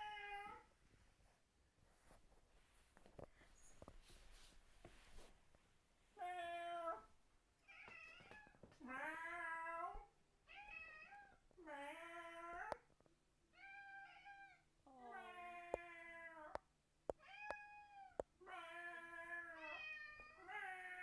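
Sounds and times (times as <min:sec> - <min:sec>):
cat meowing: 0:17.2 - 0:21.0.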